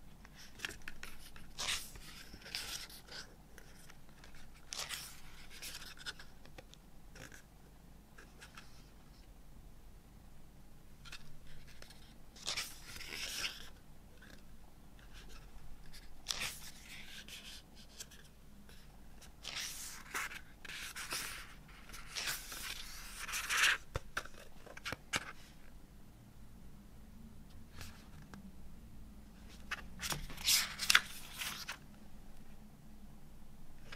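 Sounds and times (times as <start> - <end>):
book pages turning: 0.2 - 7.4, 11.0 - 25.7, 29.4 - 31.8.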